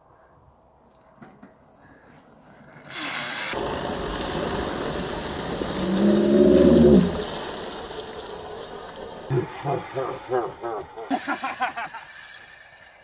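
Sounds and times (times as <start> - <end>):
bike tyres rolling over dirt: 0.9 - 9.3.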